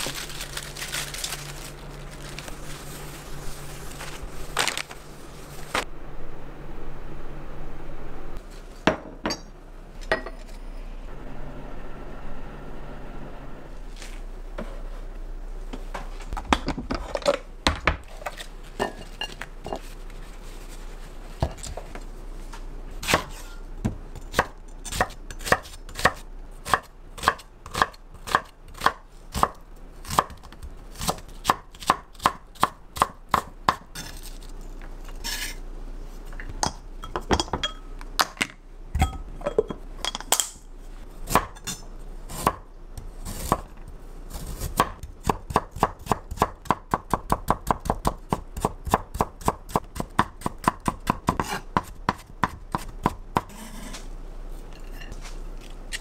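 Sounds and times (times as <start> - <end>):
knife chopping on cutting board: 44.7 - 54.0.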